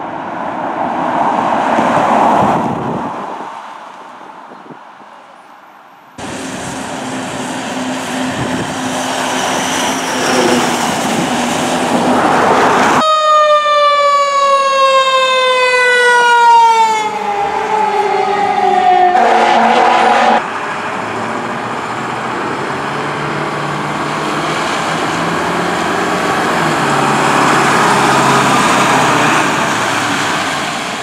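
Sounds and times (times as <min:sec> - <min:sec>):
truck engine and road noise: 0:00.0 - 0:31.0
siren sliding down in pitch: 0:13.0 - 0:20.4.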